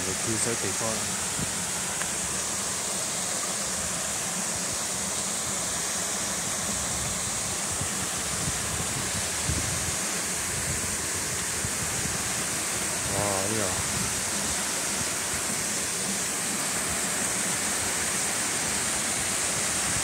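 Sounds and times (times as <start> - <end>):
small waterfalls rushing: 0.0 - 20.0.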